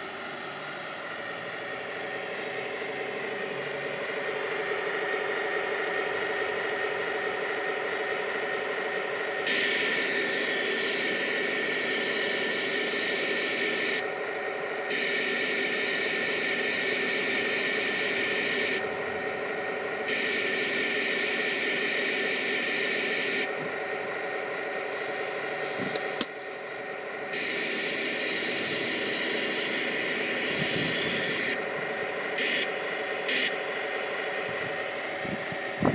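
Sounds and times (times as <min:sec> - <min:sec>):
simulated tank engine sound: 0:00.0 - 0:35.9
sharp click: 0:25.9 - 0:26.4.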